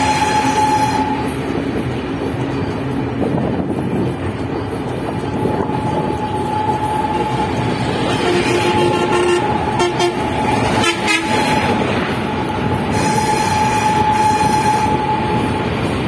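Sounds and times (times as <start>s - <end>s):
train horn: 0.0s - 1.5s, 5.4s - 15.6s
train rumbling: 0.0s - 16.0s.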